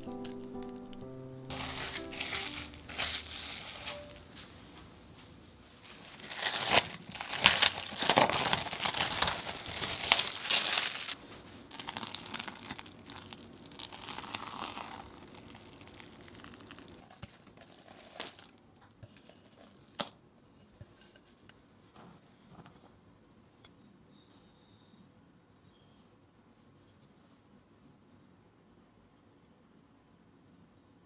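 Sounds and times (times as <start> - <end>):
cling film crinkling: 0.0 - 4.6, 5.8 - 18.6
spatula stirring bubbly dough: 11.7 - 17.9.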